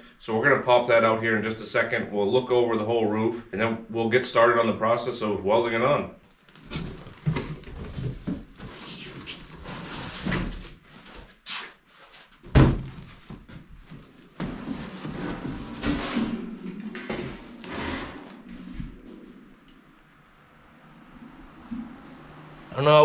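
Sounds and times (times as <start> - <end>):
cardboard box rustling: 6.4 - 11.4.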